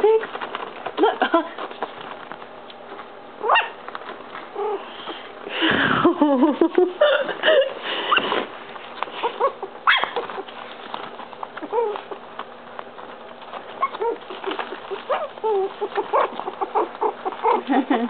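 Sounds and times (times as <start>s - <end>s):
puppies yipping and whining: 3.4s - 5.3s, 9.0s - 18.0s.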